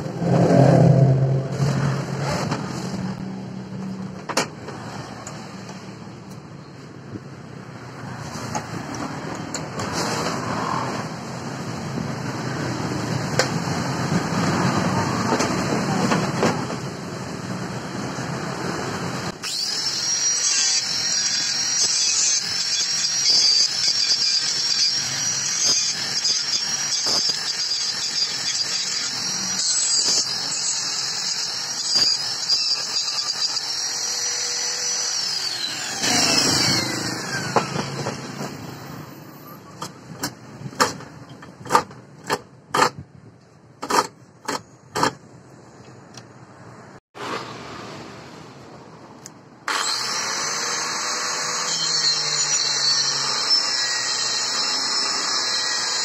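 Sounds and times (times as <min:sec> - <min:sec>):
angle grinder cutting metal: 0:19.2 - 0:39.2, 0:49.7 - 0:56.0
grinder disc spinning down: 0:19.4 - 0:38.8, 0:49.7 - 0:56.0.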